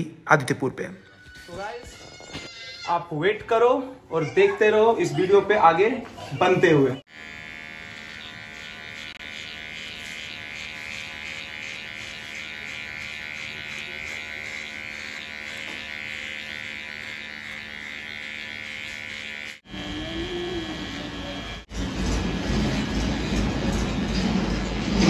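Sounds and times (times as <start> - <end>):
electric hair clippers buzzing: 6.6 - 24.3.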